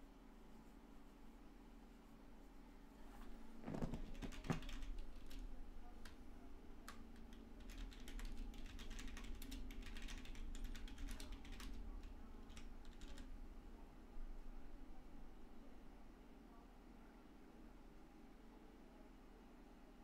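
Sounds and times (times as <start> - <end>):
low steady hum: 0.0 - 20.0
typing on a keyboard: 3.7 - 6.2, 6.8 - 13.3.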